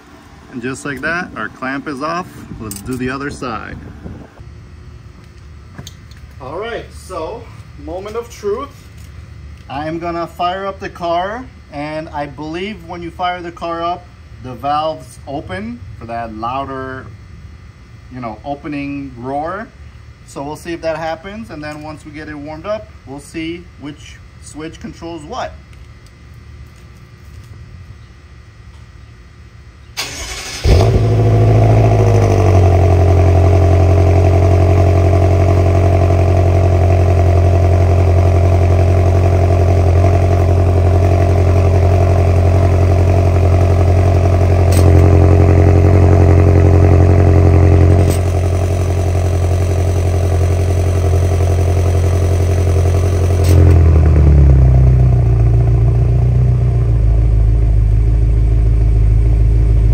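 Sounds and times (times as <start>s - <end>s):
car engine starting and idling: 30.0s - 59.9s.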